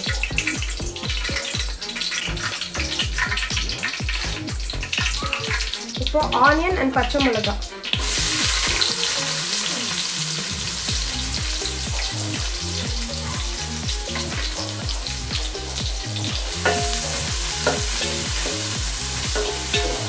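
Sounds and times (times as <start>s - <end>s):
onions sizzling in hot oil: 0.0s - 20.0s
metal spoon scraping a pot: 19.4s - 20.0s.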